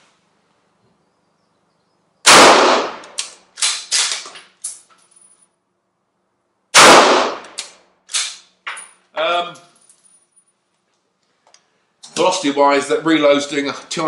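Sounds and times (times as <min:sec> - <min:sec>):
rifle shots: 0:02.2 - 0:04.2, 0:06.7 - 0:08.4.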